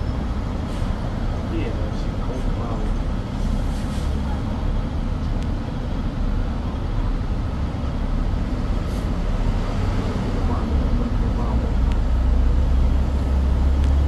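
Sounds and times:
bus engine rumble: 0.0 - 14.0
street traffic: 0.0 - 14.0.

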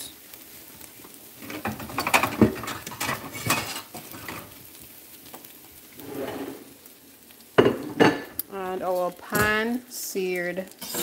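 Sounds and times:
utensil scraping a skillet: 1.4 - 7.0, 10.6 - 11.0.

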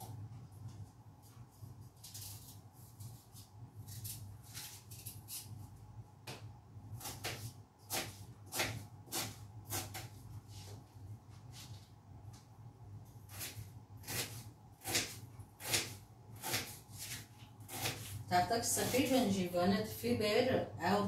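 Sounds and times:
steady low hum: 0.0 - 21.0
knife cutting on plastic board: 13.3 - 18.2.

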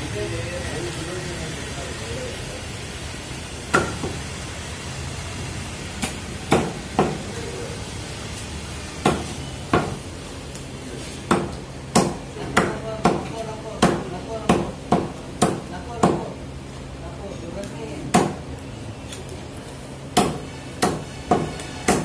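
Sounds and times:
meat cleaver chopping: 3.7 - 4.2, 6.0 - 7.4, 8.9 - 10.0, 11.2 - 16.3, 20.1 - 22.0.

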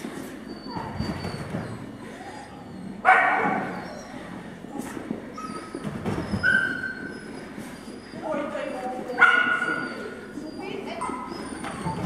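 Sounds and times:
dog barking with echo: 3.0 - 3.7, 9.2 - 9.7.

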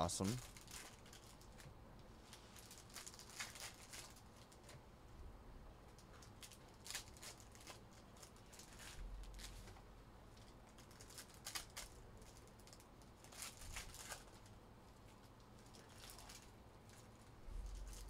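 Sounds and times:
trading cards and wrappers rustling: 0.1 - 4.8, 6.0 - 9.8, 10.4 - 18.0.

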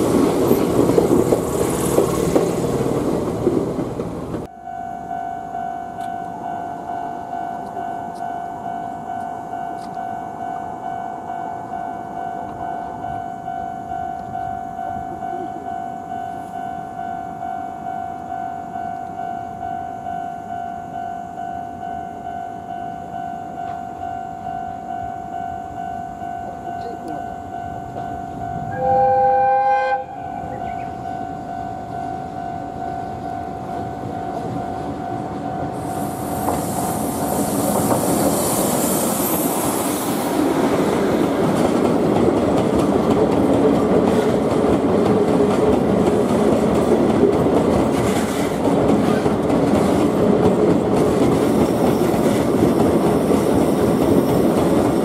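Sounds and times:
train wheels rumbling and clicking: 0.0 - 4.5, 9.1 - 10.2, 31.9 - 55.0
locomotive horn blast: 28.6 - 31.0
train hiss: 35.7 - 41.2.

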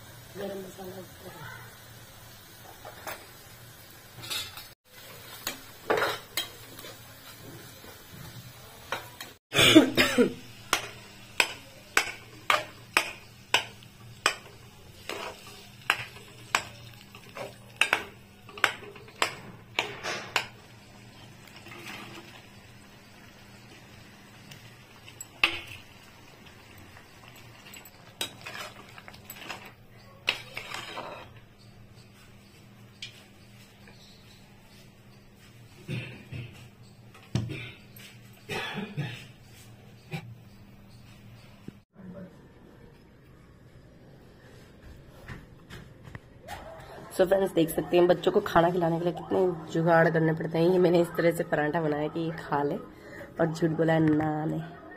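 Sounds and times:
metal spatula scraping a pan: 4.2 - 7.4, 10.7 - 22.5, 27.2 - 31.7.

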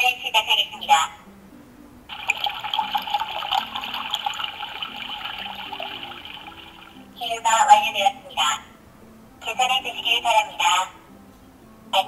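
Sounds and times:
toy watery pouring sound effect: 2.1 - 7.0.

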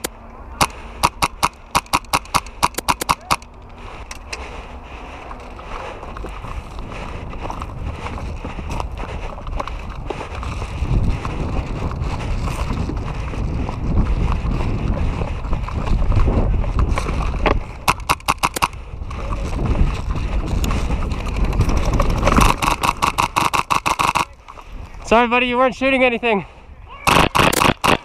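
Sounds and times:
airsoft rifle firing bursts: 0.0 - 3.4, 17.9 - 18.8, 22.2 - 24.3, 27.1 - 28.0
low rumble: 3.4 - 23.4.

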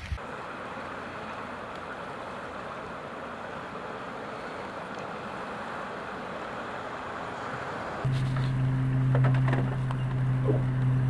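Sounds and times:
river floodwater rushing: 0.2 - 8.6.

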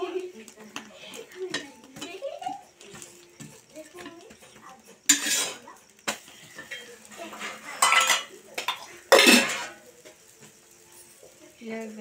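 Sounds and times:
metal spatula scraping frying pan: 4.9 - 9.9.

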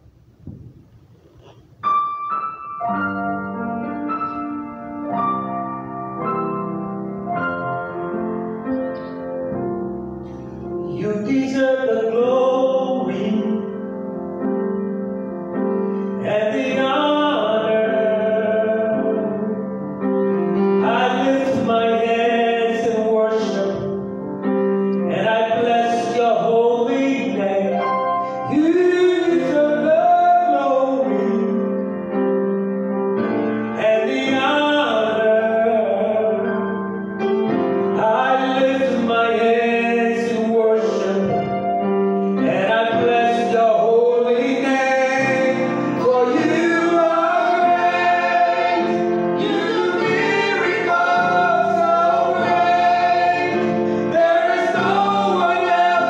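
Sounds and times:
keyboard playing held chords: 1.8 - 56.0
person singing: 10.8 - 14.0, 16.2 - 19.7, 24.9 - 31.9, 33.7 - 36.8, 37.9 - 41.7, 42.3 - 56.0.

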